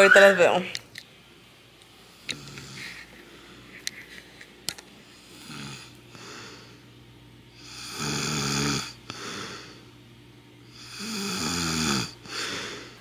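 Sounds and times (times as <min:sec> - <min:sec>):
man snoring: 0:05.4 - 0:06.0, 0:07.6 - 0:09.7, 0:10.7 - 0:13.0.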